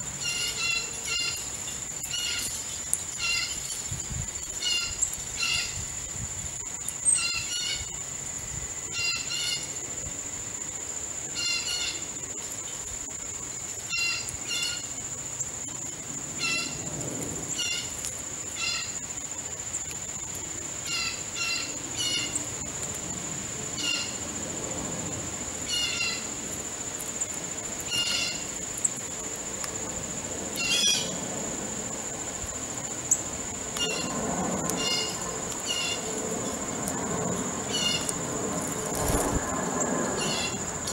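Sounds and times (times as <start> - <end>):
insect trill: 0.0 - 40.9
crows calling: 34.7 - 36.1, 37.6 - 38.2.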